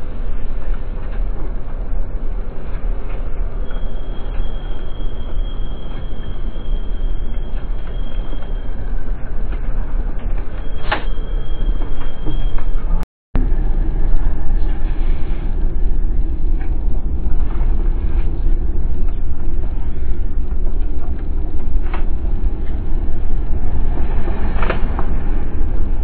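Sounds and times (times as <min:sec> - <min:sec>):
car road and engine rumble: 0:12.8 - 0:26.0.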